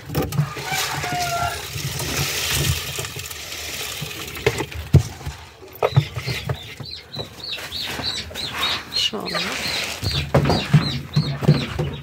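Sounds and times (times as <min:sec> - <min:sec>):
rustling: 0:00.0 - 0:12.0
ducklings peeping: 0:05.8 - 0:12.0.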